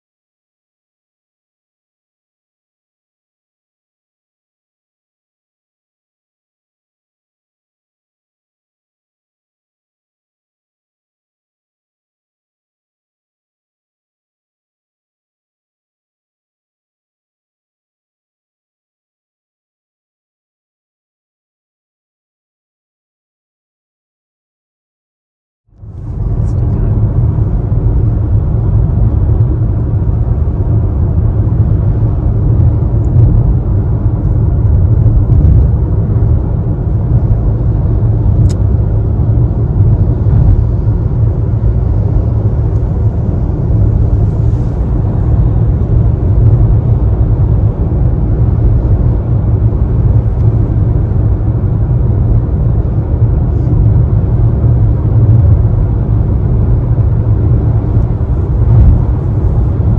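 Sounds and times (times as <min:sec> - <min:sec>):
wind: 0:25.7 - 0:59.9
car engine: 0:25.8 - 0:59.9.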